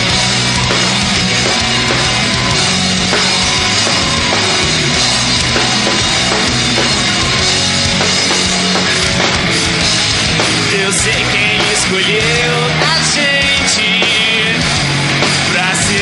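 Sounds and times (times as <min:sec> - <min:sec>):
drum kit: 0:00.0 - 0:16.0
electric guitars: 0:00.0 - 0:16.0.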